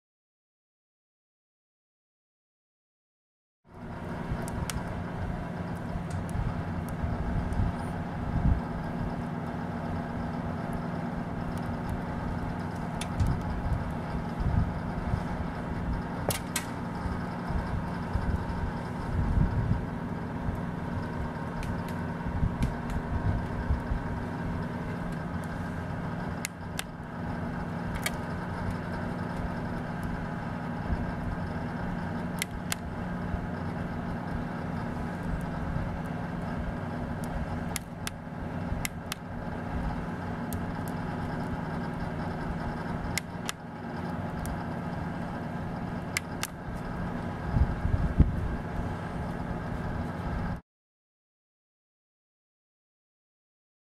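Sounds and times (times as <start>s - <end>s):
stove motor and fan hum: 3.7s - 50.6s
sharp ticks: 37.2s - 38.2s, 46.0s - 46.9s.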